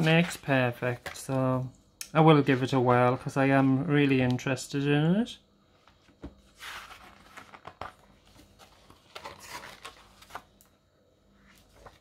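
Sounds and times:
book pages turning: 5.9s - 10.7s, 11.4s - 12.0s.

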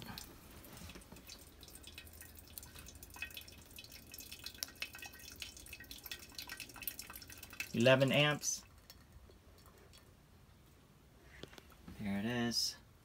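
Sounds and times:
coffee dripping into carafe: 0.0s - 10.2s.

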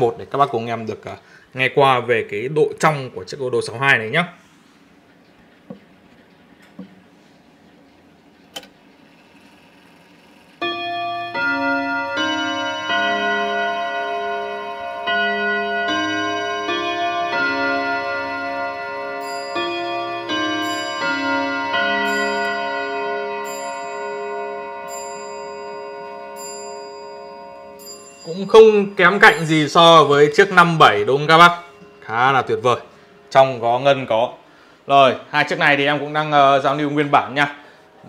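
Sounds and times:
clock chiming on gong rods: 10.6s - 37.6s.

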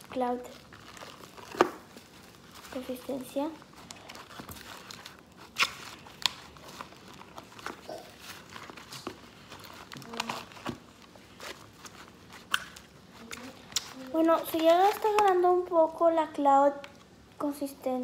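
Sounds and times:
slime crackling and snapping: 0.1s - 2.7s, 3.7s - 15.5s.

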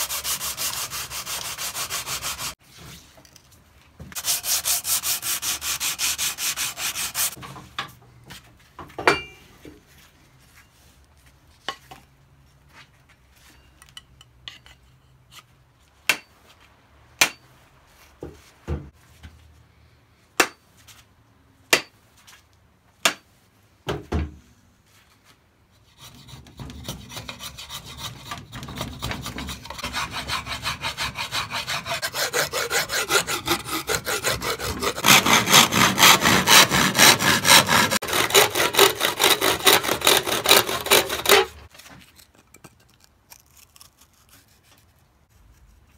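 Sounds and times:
rasp scraping wood: 0.0s - 2.6s, 4.1s - 7.4s, 25.9s - 41.7s
sanding block rubbing wood: 0.0s - 2.6s, 4.2s - 7.4s, 25.9s - 41.6s.

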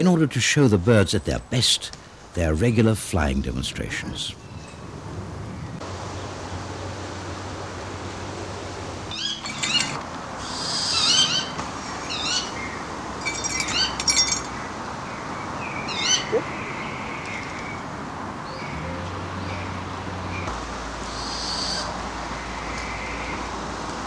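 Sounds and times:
bird of prey calling: 9.1s - 14.6s, 15.7s - 17.8s, 21.1s - 21.9s.

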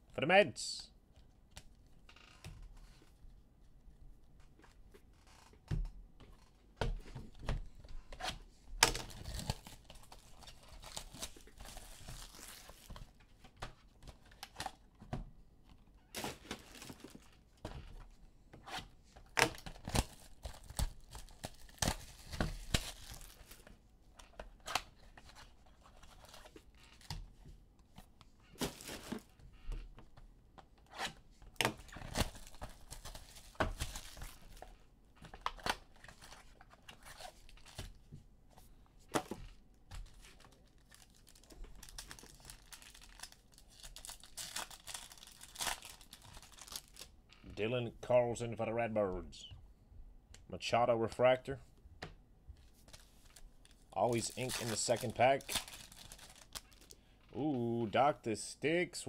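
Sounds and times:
card wrappers tearing and crinkling: 8.8s - 13.1s, 16.2s - 17.3s, 19.3s - 23.7s, 31.7s - 34.6s, 40.0s - 47.1s, 52.9s - 57.0s.

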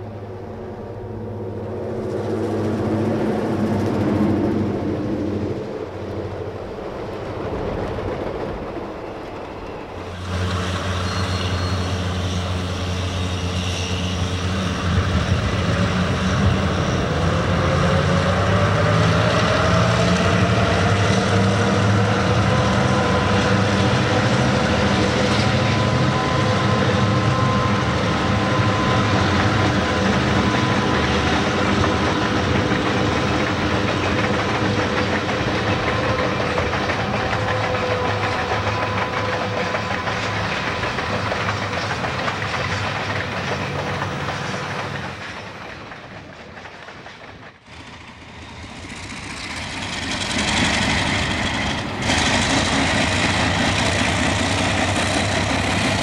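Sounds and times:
diesel locomotive engines running: 0.0s - 56.0s
train cars rolling on rails: 0.0s - 56.0s.

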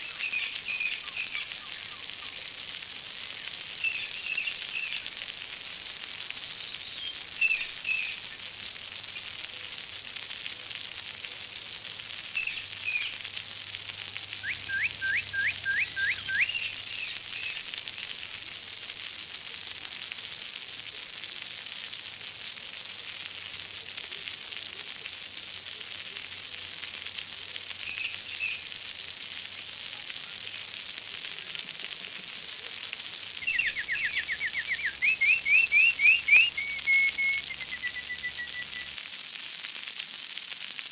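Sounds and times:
running water splashing: 0.0s - 40.9s
rising whistled chirps: 14.4s - 17.1s, 33.5s - 39.0s.

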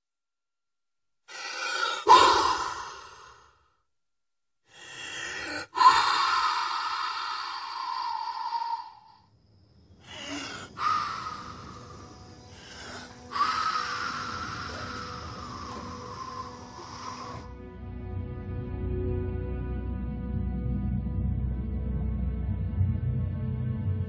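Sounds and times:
person breathing heavily: 1.2s - 3.8s, 4.6s - 9.2s, 9.8s - 17.6s.

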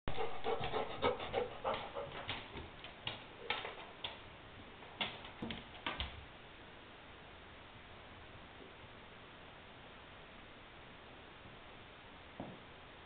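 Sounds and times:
dogs playing clicks and knocks: 0.1s - 4.3s, 4.9s - 6.2s.

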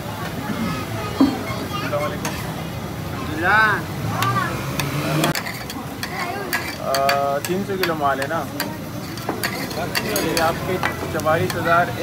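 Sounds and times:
people's voices: 0.0s - 12.0s
liver sizzling on griddle: 1.8s - 12.0s
metal spatula scraping griddle: 1.9s - 2.6s, 5.2s - 11.7s.

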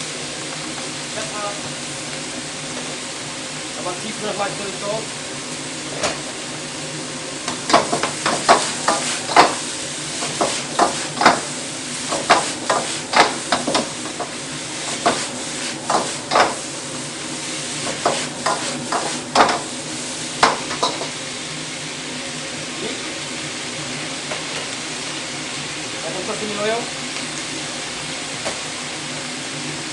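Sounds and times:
frying sizzle: 0.0s - 29.9s
spatula scraping a wok: 8.0s - 11.4s, 14.8s - 16.7s, 17.4s - 19.4s.

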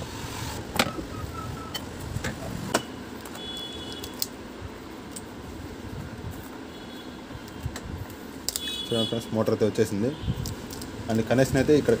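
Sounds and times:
steady low background hum: 0.0s - 12.0s.

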